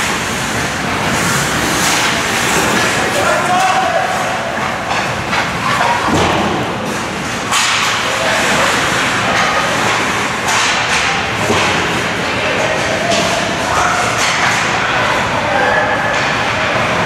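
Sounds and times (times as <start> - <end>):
skates hissing on ice: 0.0 - 3.2
hockey sticks and puck clacking: 0.0 - 17.0
players hitting the boards: 0.1 - 14.9.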